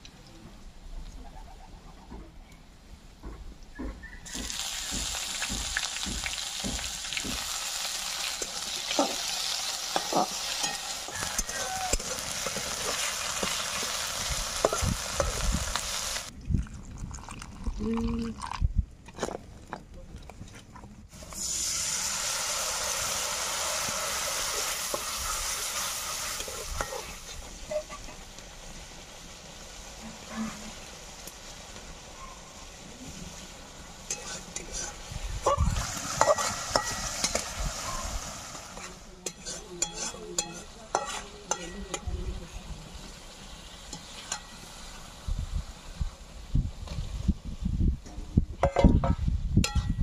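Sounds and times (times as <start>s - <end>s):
spices sizzling in hot oil: 4.3s - 16.3s, 21.1s - 47.3s
metal spatula scraping pan: 9.9s - 13.9s, 34.1s - 35.1s, 36.2s - 38.0s, 39.2s - 42.1s.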